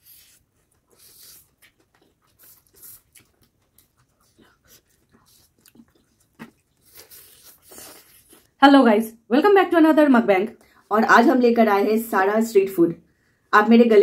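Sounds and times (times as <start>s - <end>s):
people chewing and slurping noodles: 0.0s - 8.6s.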